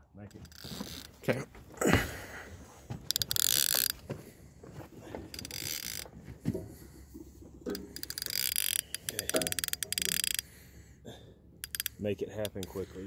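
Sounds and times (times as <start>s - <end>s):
fishing reel ratcheting: 0.3s - 1.2s, 3.1s - 4.0s, 5.3s - 6.1s, 7.7s - 10.6s, 11.6s - 13.0s.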